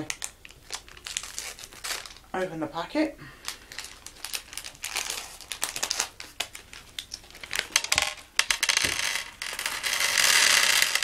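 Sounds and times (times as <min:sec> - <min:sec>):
plastic packet crinkling and tearing: 0:00.0 - 0:02.4, 0:03.4 - 0:08.3.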